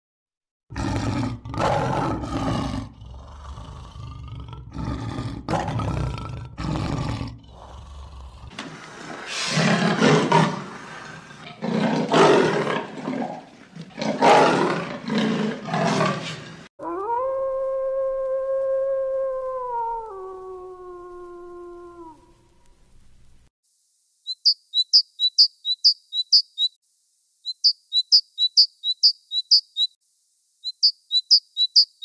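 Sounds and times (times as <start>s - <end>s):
lion roaring: 0.7s - 17.2s
wolf howling: 16.8s - 22.6s.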